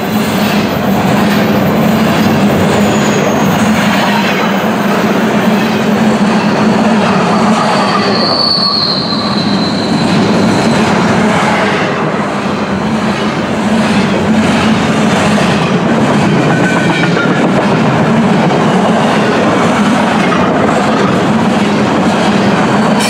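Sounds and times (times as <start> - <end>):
freight train wheels rumbling: 0.0 - 23.0
wheel squeal: 7.3 - 11.0.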